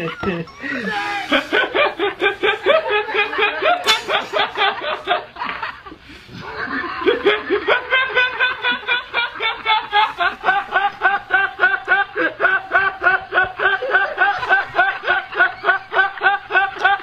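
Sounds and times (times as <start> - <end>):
rhythmic laughter: 0.0 - 17.0.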